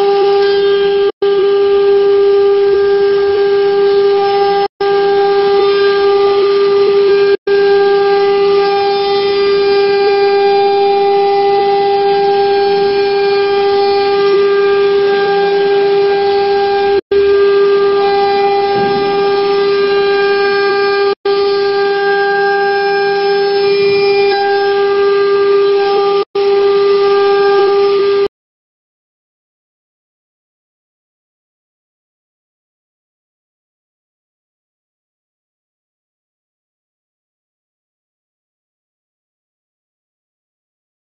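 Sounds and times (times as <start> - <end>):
router spindle whining: 0.0 - 28.3.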